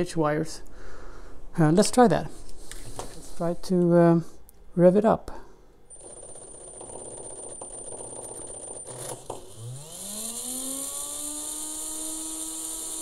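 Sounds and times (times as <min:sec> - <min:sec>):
motor rotor rattling and clicking: 0:06.2 - 0:13.0
brushless motor whining: 0:08.9 - 0:13.0.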